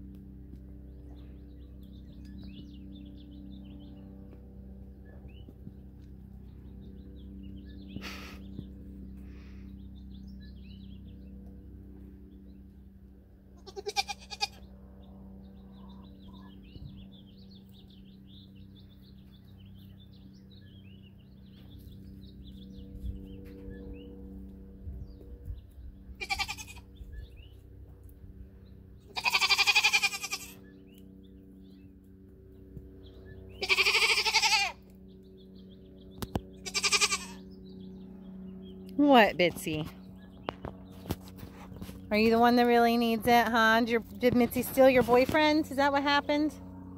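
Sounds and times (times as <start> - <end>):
birds chirping: 0.4 - 12.9, 13.6 - 46.9
goat bleating: 13.6 - 14.6, 26.2 - 26.9, 29.0 - 30.6, 33.6 - 34.8, 36.6 - 37.4.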